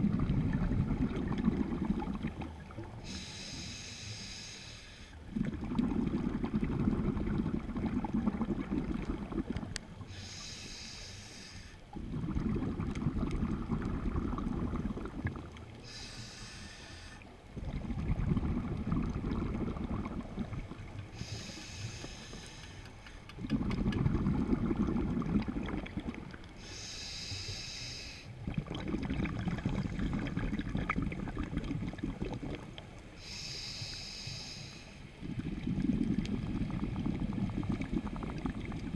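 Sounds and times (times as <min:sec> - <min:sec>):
exhaled bubbles rumbling: 0:00.0 - 0:03.1, 0:05.2 - 0:10.2, 0:11.9 - 0:16.0, 0:17.3 - 0:21.5, 0:23.3 - 0:26.6, 0:28.4 - 0:33.1, 0:35.2 - 0:38.9
regulator inhale hiss: 0:03.0 - 0:05.2, 0:10.0 - 0:11.8, 0:15.8 - 0:17.3, 0:21.1 - 0:23.3, 0:26.6 - 0:28.4, 0:33.1 - 0:35.2.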